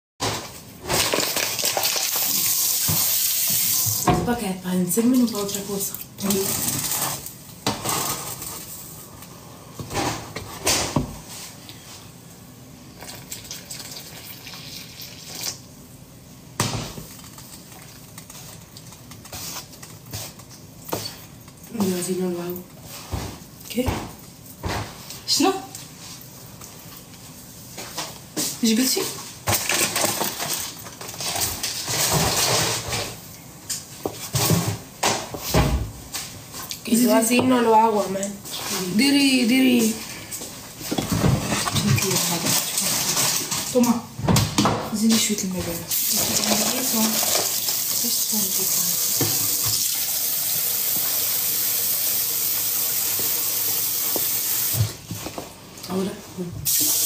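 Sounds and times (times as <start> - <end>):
water running: 1.2 - 7.5, 44.9 - 55.0.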